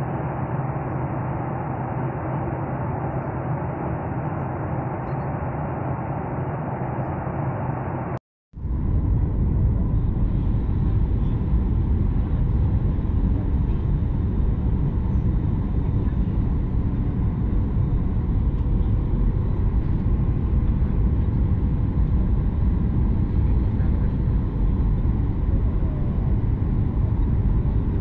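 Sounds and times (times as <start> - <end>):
airflow and jet engine rumble: 0.0 - 28.0.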